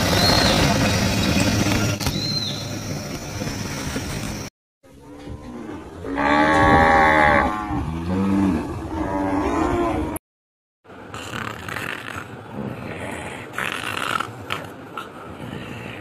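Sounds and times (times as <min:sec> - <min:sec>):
rough noisy sound: 0:00.0 - 0:04.5
cow mooing: 0:05.0 - 0:10.2.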